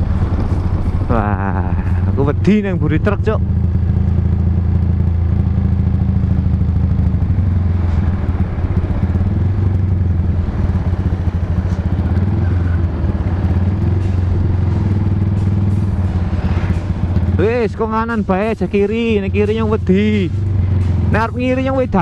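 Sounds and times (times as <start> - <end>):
motorcycle engine cruising: 0.0 - 22.0.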